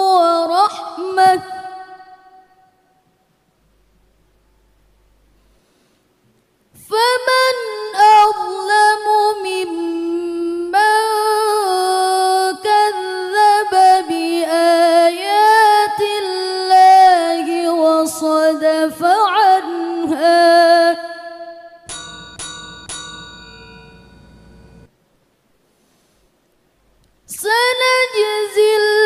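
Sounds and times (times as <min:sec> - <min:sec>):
woman reciting melodically: 0:00.0 - 0:02.2, 0:06.8 - 0:21.8, 0:27.3 - 0:29.0.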